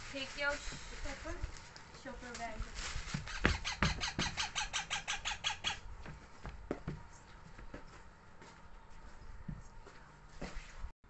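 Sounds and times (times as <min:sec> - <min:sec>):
baby parrot begging calls: 0:03.3 - 0:05.8.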